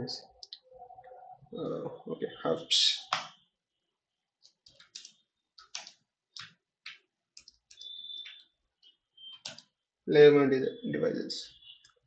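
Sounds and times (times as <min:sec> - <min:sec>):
computer keyboard typing: 0:04.4 - 0:08.5, 0:09.3 - 0:09.8.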